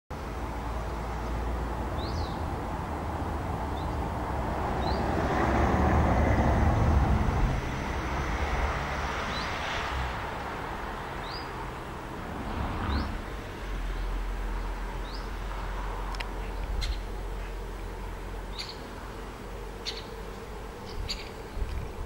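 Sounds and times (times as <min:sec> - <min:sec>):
outdoor background noise: 0:00.1 - 0:22.0
vehicle driving past: 0:00.4 - 0:20.5
high bird chirps: 0:20.9 - 0:21.4.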